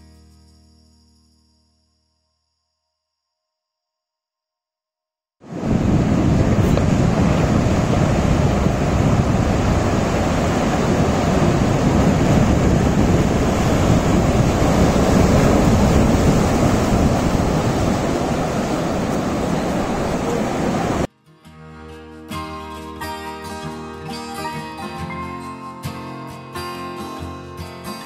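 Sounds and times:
surf breaking over boulders: 5.4s - 21.1s
wind buffeting microphone: 5.4s - 21.1s.

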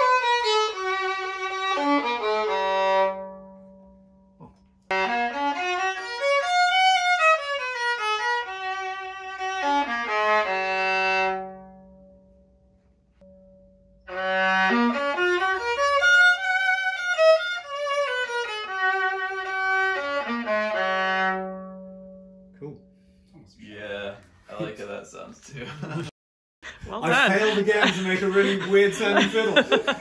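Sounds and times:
bowed violin melody: 0.0s - 3.9s, 4.9s - 11.8s, 14.1s - 22.2s.

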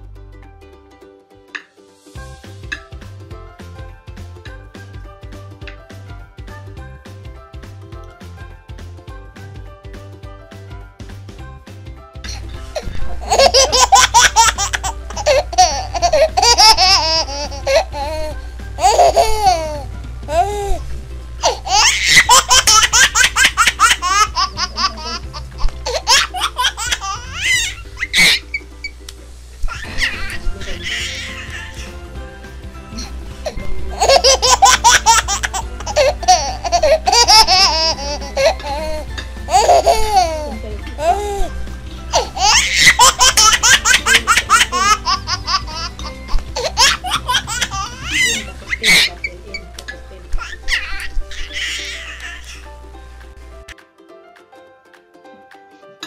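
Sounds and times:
background music: 0.0s - 56.0s
high-pitched laughter: 12.8s - 19.7s.

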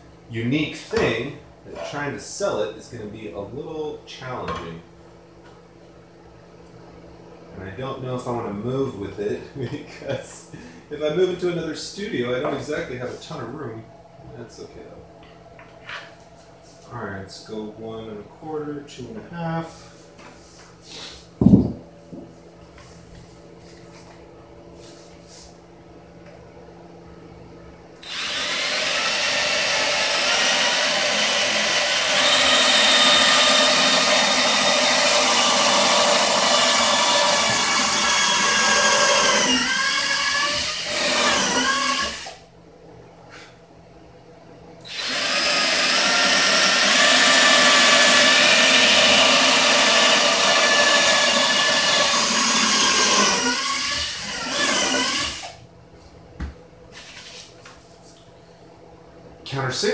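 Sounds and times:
cordless drill boring into wood: 28.0s - 42.4s, 44.8s - 55.6s.

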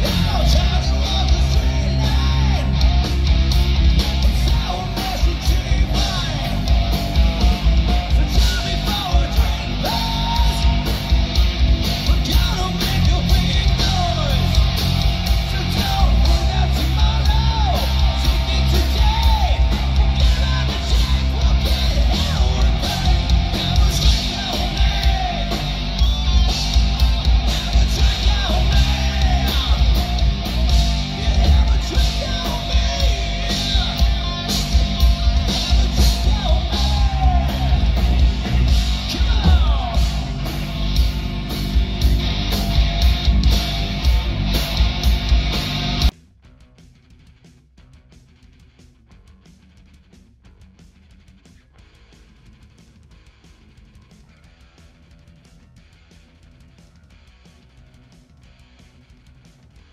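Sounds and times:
electric guitars: 0.0s - 46.1s
drums: 0.0s - 59.9s.

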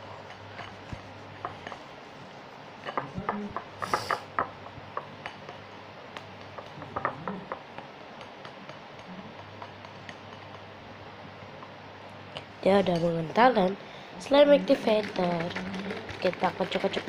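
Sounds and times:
plastic spatula stirring sticky mixture: 14.2s - 17.0s.

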